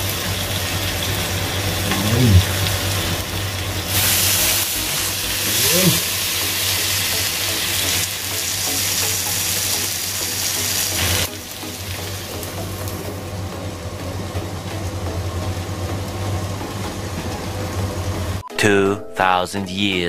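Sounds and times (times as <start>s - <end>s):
fish sizzling in grill pan: 2.6s - 13.4s.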